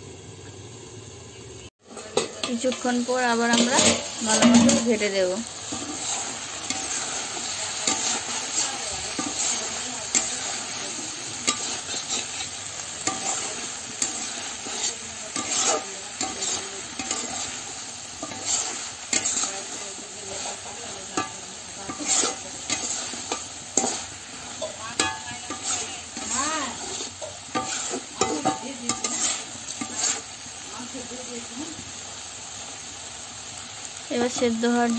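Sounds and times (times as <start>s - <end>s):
vegetables sizzling in a pan: 0.0s - 34.9s
spatula scraping a pan: 1.9s - 30.6s.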